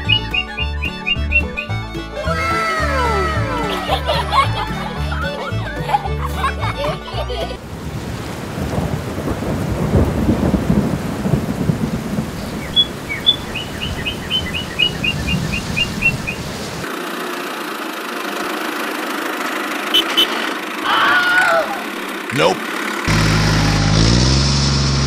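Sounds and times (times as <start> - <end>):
bird chirping: 0.0 - 1.8, 12.4 - 16.6
rain hissing: 6.5 - 20.8, 22.0 - 25.0
thunder rumbling: 7.6 - 16.8.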